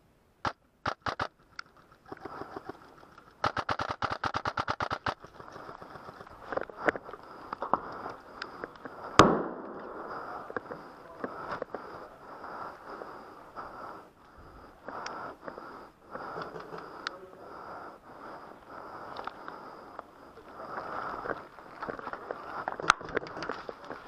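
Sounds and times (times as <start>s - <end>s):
airsoft rifle shots: 0.4s - 1.3s, 3.4s - 5.2s, 9.2s - 9.8s.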